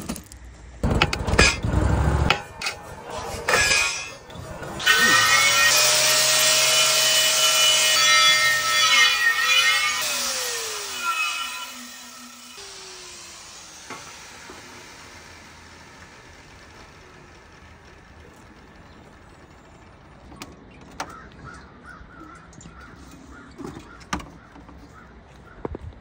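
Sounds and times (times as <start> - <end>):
faint outdoor air: 0.0 - 26.0
angle grinder winding down: 0.8 - 20.2
crows cawing: 21.0 - 25.7.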